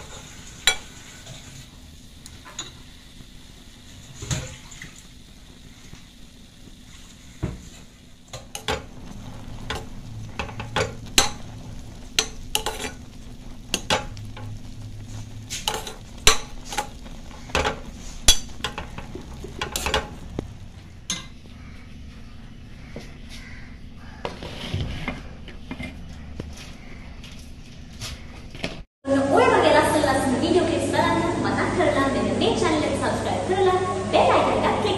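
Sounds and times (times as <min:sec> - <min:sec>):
spoon clinking and scraping pan: 0:00.0 - 0:01.4, 0:12.2 - 0:13.1, 0:15.5 - 0:17.0, 0:17.6 - 0:20.3, 0:21.1 - 0:21.4
curry bubbling: 0:00.0 - 0:26.3.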